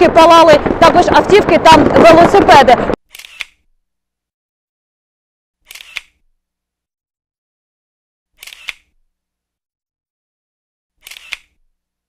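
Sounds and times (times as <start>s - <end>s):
camera shutter click: 3.1s - 3.6s, 5.6s - 6.2s, 8.4s - 9.0s, 11.0s - 11.6s.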